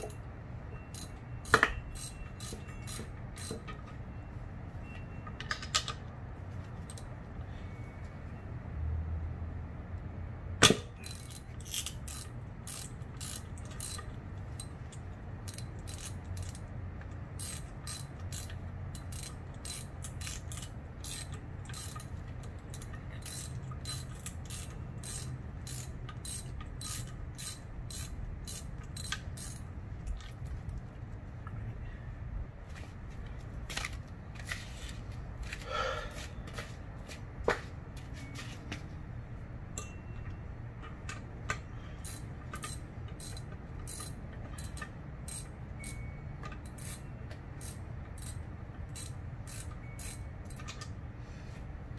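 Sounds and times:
socket ratchet clicking: 0.9s - 3.7s, 10.6s - 29.7s, 40.8s - 51.0s.

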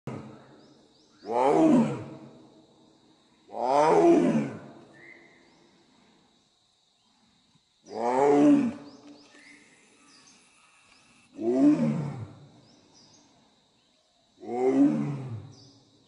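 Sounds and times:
tiger roaring: 1.3s - 2.3s, 3.5s - 4.7s, 11.3s - 12.5s, 14.4s - 15.6s.

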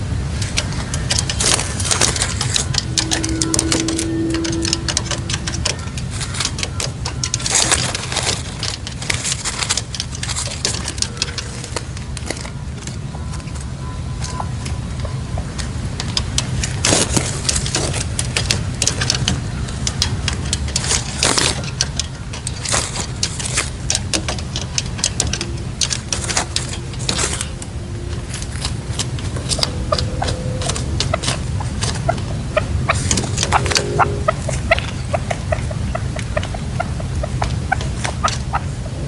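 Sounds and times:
bird run of short notes: 32.5s - 36.1s.

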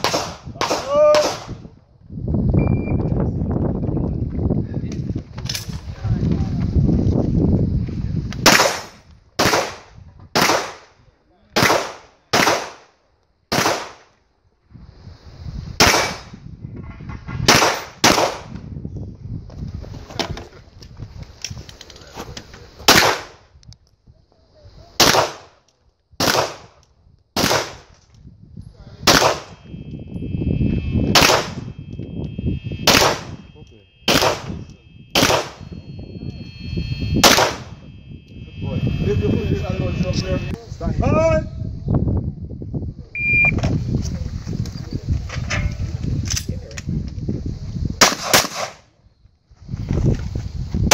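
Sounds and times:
pistol shots ringing: 29.0s - 29.7s, 31.1s - 31.8s, 32.8s - 36.3s, 37.2s - 38.0s.

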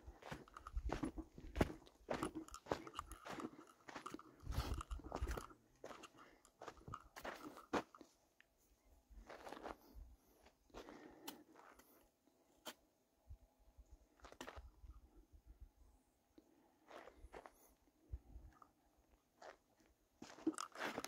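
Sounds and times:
footsteps on gravel: 0.1s - 8.1s.

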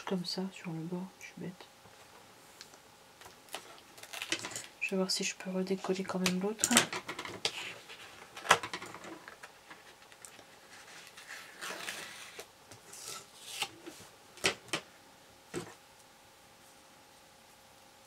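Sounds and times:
paper rustling: 7.4s - 14.1s.

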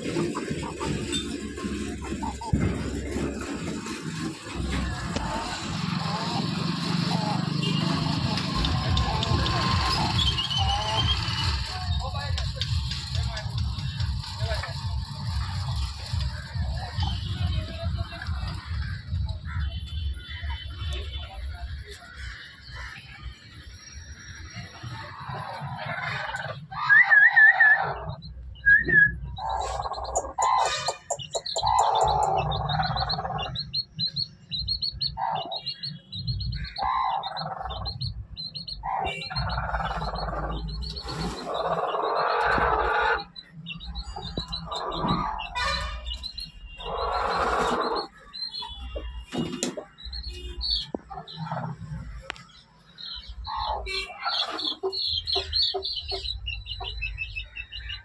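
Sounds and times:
chickens clucking and squawking: 0.0s - 11.7s, 25.3s - 28.2s, 28.8s - 33.8s, 34.9s - 36.0s, 36.7s - 48.7s, 53.3s - 58.0s.

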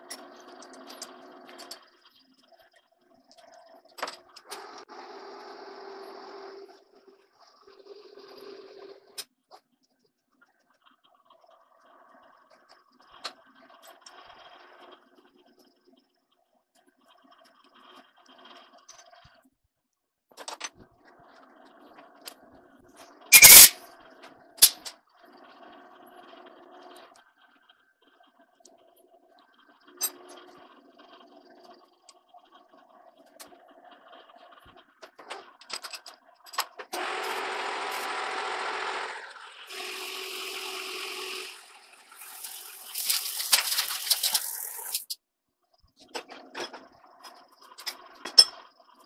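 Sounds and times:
lathe running: 37.0s - 45.0s.

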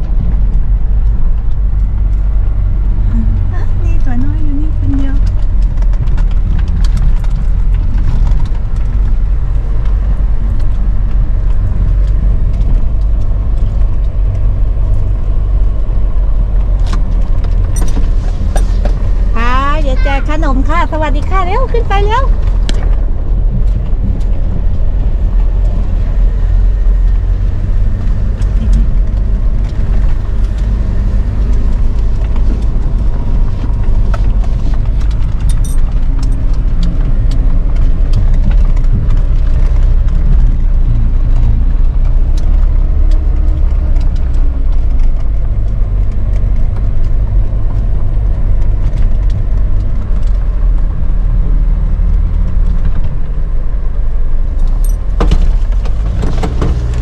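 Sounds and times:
vehicle engine running: 0.0s - 57.0s
knocks and rattles from bumps: 54.7s - 57.0s.

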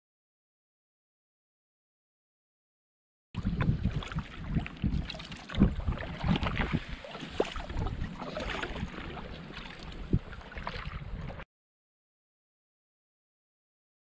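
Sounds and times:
water splashing against boat hull: 3.4s - 11.4s
wind buffeting microphone: 3.4s - 11.4s.

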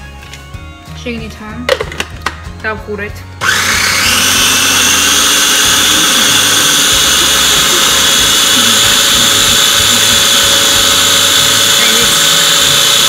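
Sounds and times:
food processor motor whine: 3.4s - 13.0s.

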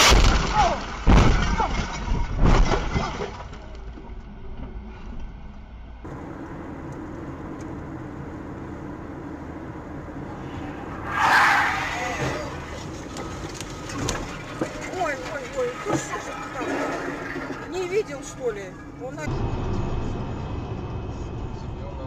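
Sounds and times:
glass breaking: 0.0s - 3.6s
car collision with crunching metal: 0.0s - 3.7s
road noise: 3.1s - 22.0s.

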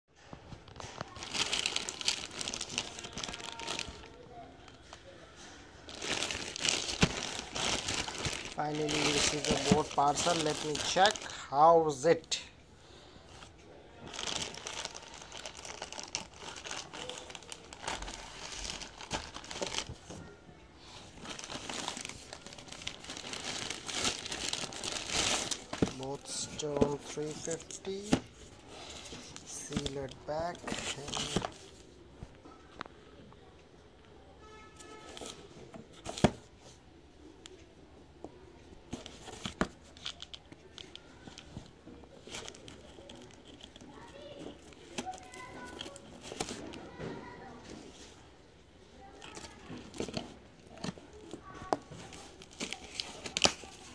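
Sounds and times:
plastic bag crinkling: 0.8s - 4.8s, 5.8s - 11.4s, 14.0s - 20.1s, 21.1s - 28.2s.

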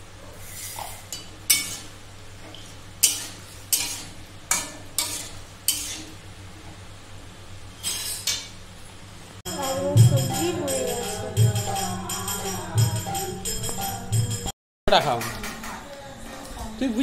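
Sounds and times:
metal spatula scraping pan: 3.0s - 6.2s.

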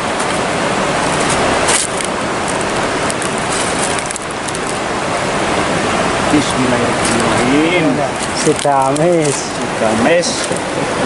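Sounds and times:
handling noises: 0.0s - 5.5s, 6.4s - 11.0s
fast-flowing river rushing: 0.0s - 11.0s.

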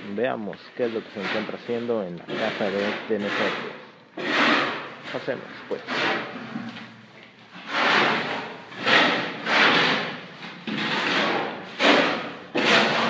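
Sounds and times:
tool scraping mortar on concrete: 0.1s - 13.0s.

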